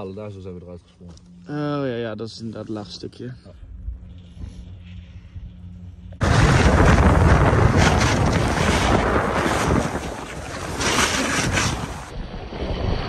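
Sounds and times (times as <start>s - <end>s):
wind rushing over microphone: 6.1s - 13.0s.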